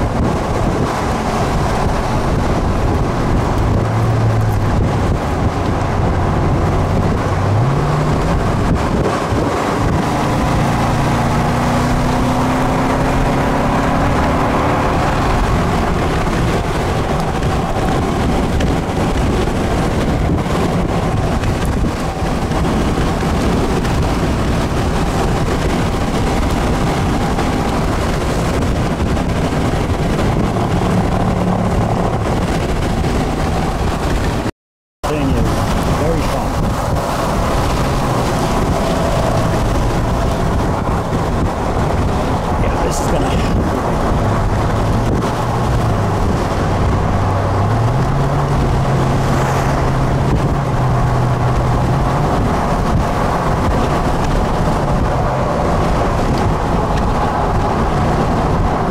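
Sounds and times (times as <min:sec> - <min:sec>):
car engine accelerating: 0:00.0 - 0:58.9
road noise inside moving car: 0:00.0 - 0:58.9.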